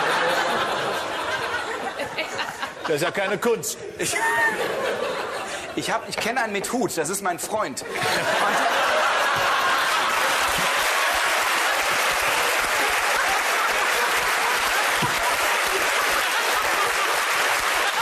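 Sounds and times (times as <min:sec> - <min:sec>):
studio audience applause: 0:08.0 - 0:18.0.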